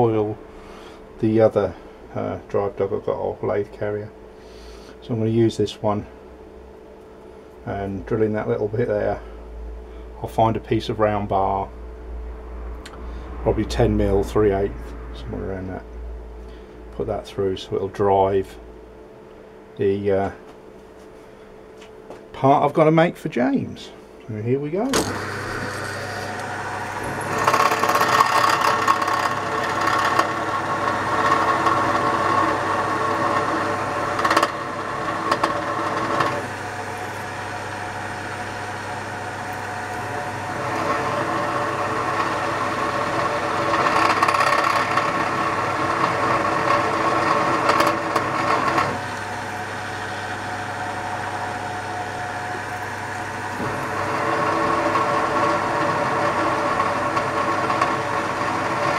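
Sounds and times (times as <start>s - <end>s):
drill bit cutting metal: 24.9s - 58.9s
drill motor hum: 24.9s - 58.9s.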